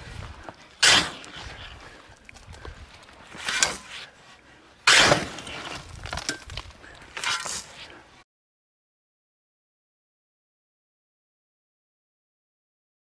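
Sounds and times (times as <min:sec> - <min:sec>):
gravel pouring and sliding: 0:04.9 - 0:07.9.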